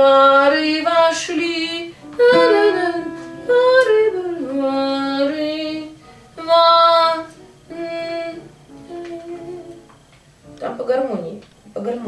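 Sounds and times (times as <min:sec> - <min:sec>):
woman singing: 0:00.0 - 0:09.9
digital piano accompaniment: 0:01.9 - 0:11.8.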